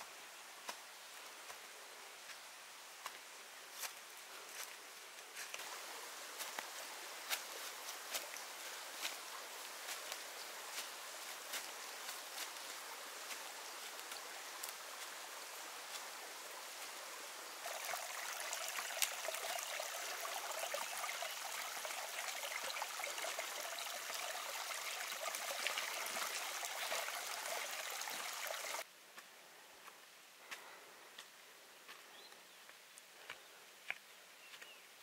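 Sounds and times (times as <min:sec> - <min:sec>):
running water trickle: 0:05.4 - 0:28.9.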